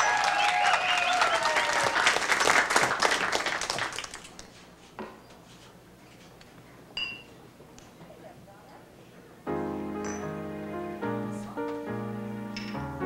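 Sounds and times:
audience applause: 0:00.0 - 0:04.4.

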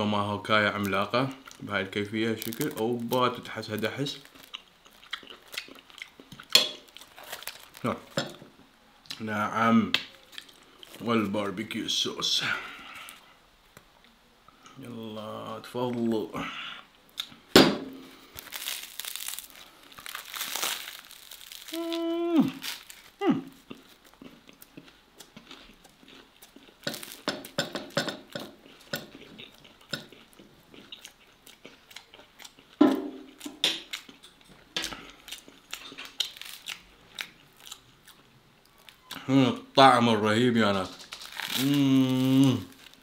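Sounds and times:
bread crust crunching: 0:02.2 - 0:08.3, 0:18.1 - 0:34.2, 0:34.8 - 0:37.8, 0:40.6 - 0:43.0
person humming mmm: 0:21.6 - 0:23.6, 0:41.5 - 0:42.9.

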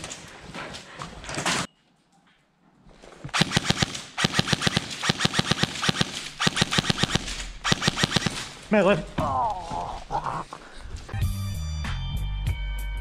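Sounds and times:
airsoft guns firing full auto: 0:03.3 - 0:08.7.

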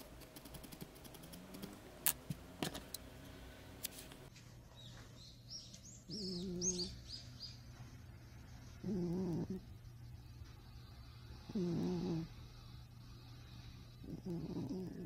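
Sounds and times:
bird chirps: 0:04.7 - 0:07.7
cat snoring: 0:06.2 - 0:06.8, 0:08.8 - 0:09.7, 0:11.3 - 0:12.8, 0:13.5 - 0:15.0.

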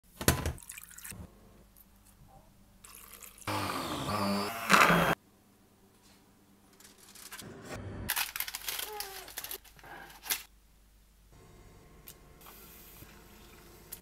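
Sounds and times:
immersion blender running: 0:03.4 - 0:05.2.

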